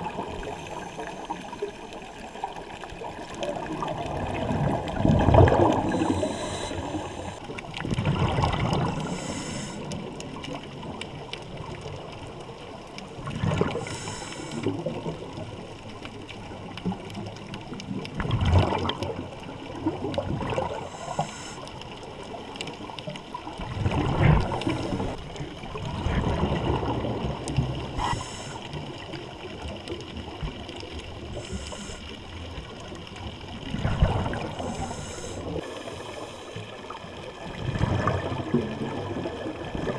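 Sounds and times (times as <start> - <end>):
exhaled bubbles rushing: 0.0 - 12.4, 13.1 - 14.0, 16.4 - 20.9, 23.3 - 39.9
regulator inhale hiss: 0.4 - 2.3, 5.8 - 7.6, 8.9 - 10.0, 13.8 - 14.8, 20.7 - 21.8, 24.4 - 25.2, 27.9 - 28.8, 31.2 - 32.3, 34.6 - 36.8.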